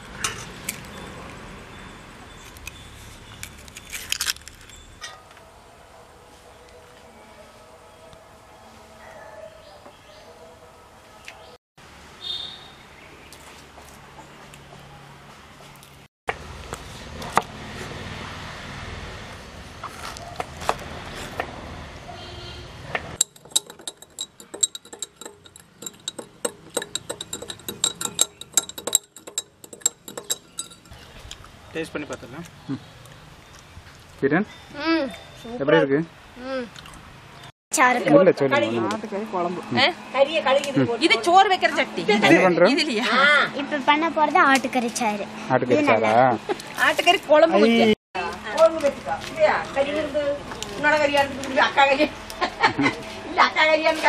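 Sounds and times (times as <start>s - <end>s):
glass tumblers clinking: 23.2s - 31.0s.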